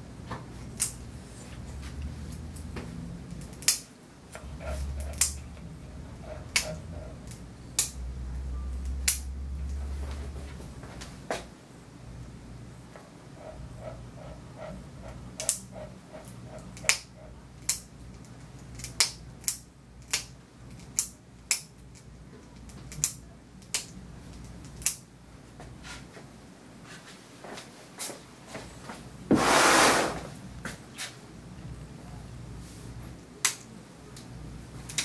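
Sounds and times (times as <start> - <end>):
grooming tool snipping: 4.4 - 8.0, 13.4 - 17.8
loud hiss: 29.3 - 30.3.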